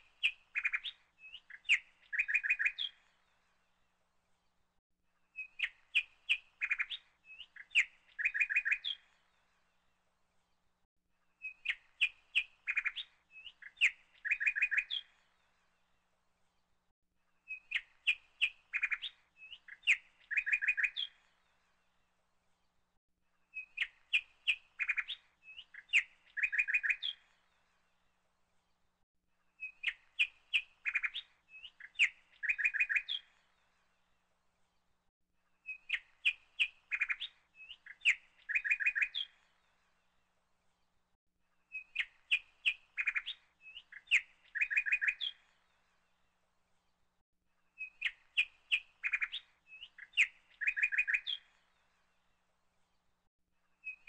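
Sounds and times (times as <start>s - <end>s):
bird chirping and trilling: 0.2s - 3.0s, 5.4s - 9.1s, 17.5s - 21.2s, 23.5s - 27.3s, 29.6s - 33.4s, 35.6s - 39.6s, 41.7s - 45.6s, 47.8s - 51.7s.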